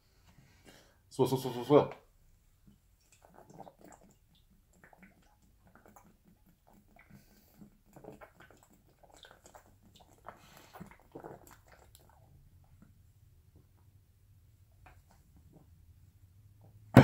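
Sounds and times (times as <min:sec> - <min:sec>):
man gulping and swallowing: 0:02.6 - 0:13.1.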